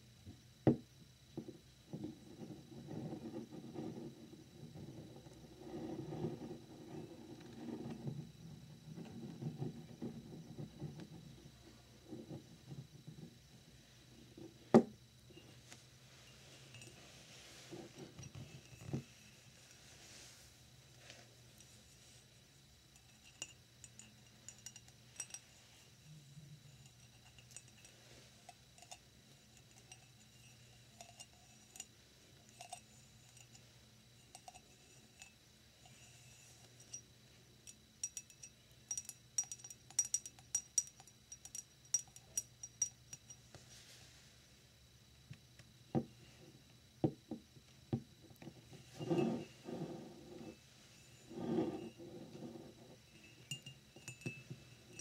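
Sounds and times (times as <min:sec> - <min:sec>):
glass knocking on wooden desk: 0:14.7 - 0:14.9, 0:47.0 - 0:50.4
fingernails tapping on glass mug: 0:38.0 - 0:43.4, 0:47.0 - 0:50.5, 0:51.3 - 0:52.7, 0:53.3 - 0:55.0.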